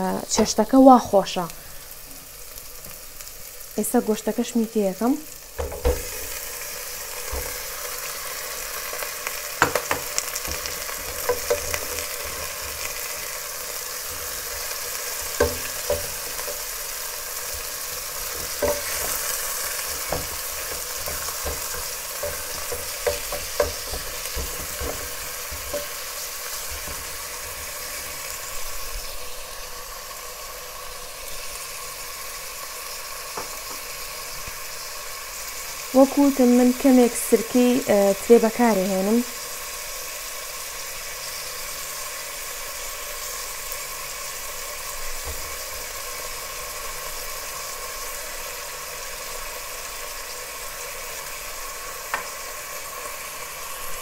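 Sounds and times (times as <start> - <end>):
meat sizzling in a pot: 0.0 - 54.0
wooden spoon striking pot: 9.6 - 12.0, 15.3 - 16.7, 18.3 - 19.2, 19.9 - 26.1.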